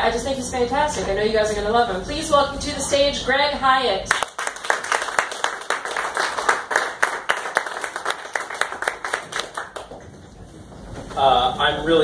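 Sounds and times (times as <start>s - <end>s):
audience applauding: 4.1s - 10.1s.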